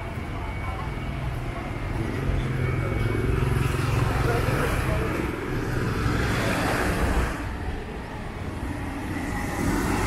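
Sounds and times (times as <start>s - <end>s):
passing traffic: 0.0s - 10.0s
vehicle passing by: 2.0s - 7.6s.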